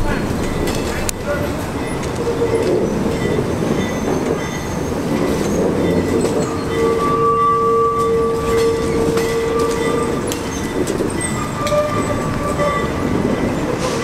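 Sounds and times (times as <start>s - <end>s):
low rolling rumble: 0.0s - 14.0s
steel wheels squealing on rail: 0.0s - 14.0s
wheels clicking over track: 7.9s - 14.0s.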